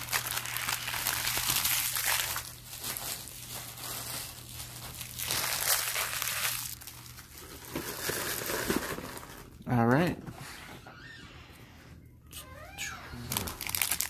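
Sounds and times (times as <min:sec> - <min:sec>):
cards and wrappers crinkling: 0:00.0 - 0:10.1, 0:13.2 - 0:14.0
low steady hum: 0:00.0 - 0:14.0.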